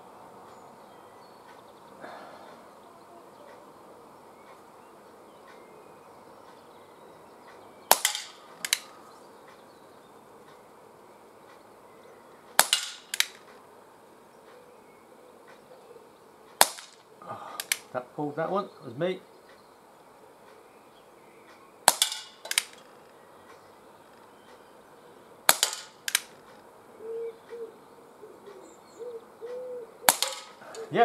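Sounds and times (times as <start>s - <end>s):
pellet revolver shots: 7.9s - 8.9s, 12.6s - 13.4s, 16.6s - 17.9s, 21.8s - 22.9s, 25.5s - 26.4s, 30.0s - 30.8s.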